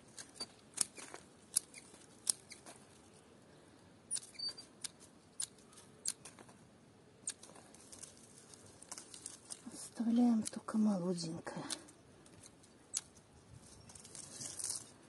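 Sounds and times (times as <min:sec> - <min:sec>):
pruning shears snipping stems: 0:08.8 - 0:13.2.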